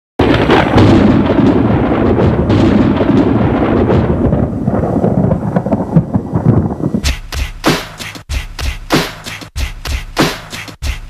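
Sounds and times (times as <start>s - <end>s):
loud continuous rumbling: 0.2s - 7.2s
sharp cracks: 0.2s - 11.0s.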